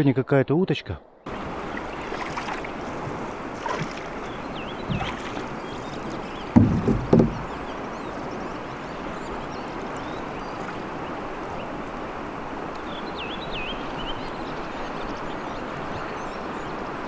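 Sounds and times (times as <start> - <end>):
flowing river water: 1.2 - 17.0
bird chirping: 3.6 - 11.8, 12.8 - 16.8.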